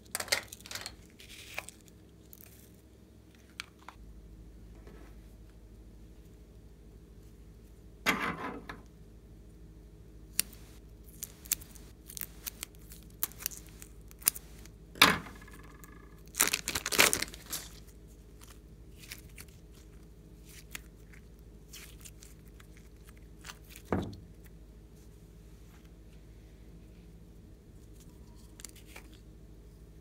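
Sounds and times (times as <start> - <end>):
plastic bag crinkling and tearing: 10.4 - 14.8, 16.2 - 23.9.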